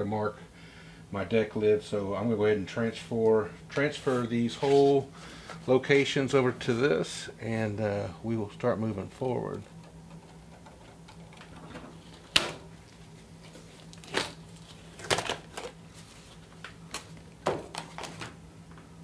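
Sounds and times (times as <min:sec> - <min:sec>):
steady low hum: 0:00.0 - 0:19.0
cardboard clicks and crackles: 0:13.5 - 0:15.8.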